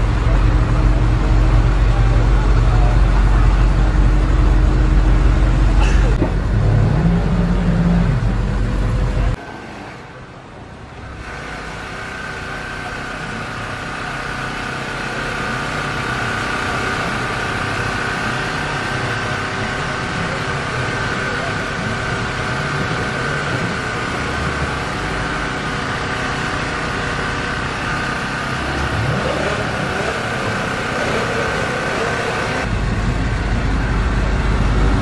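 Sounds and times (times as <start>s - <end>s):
engine running with faint whine: 0.0s - 35.0s.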